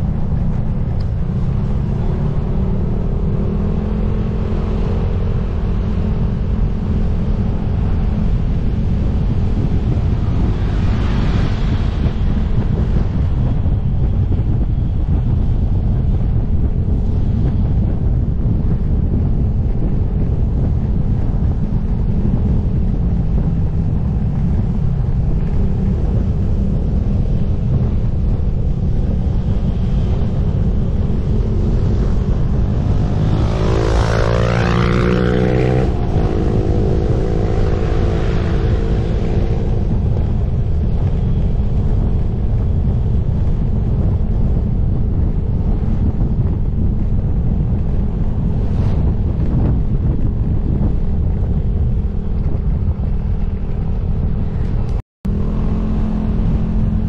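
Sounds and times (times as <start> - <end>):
motorcycle engine: 0.0 - 57.0
wind buffeting microphone: 0.0 - 57.0.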